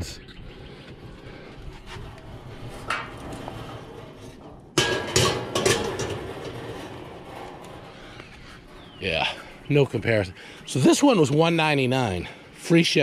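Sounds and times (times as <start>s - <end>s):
metal bucket clanking on grill: 2.8s - 7.8s.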